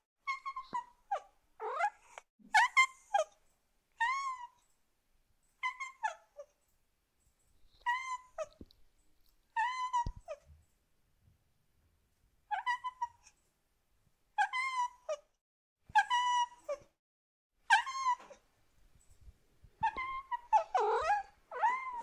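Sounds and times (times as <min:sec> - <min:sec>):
cat meowing: 0:19.8 - 0:22.0.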